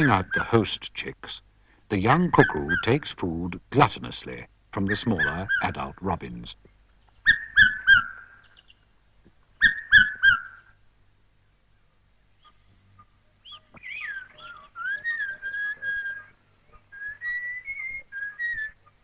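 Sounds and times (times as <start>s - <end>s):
bird fluty whistled song: 7.2s - 10.8s, 13.4s - 19.0s.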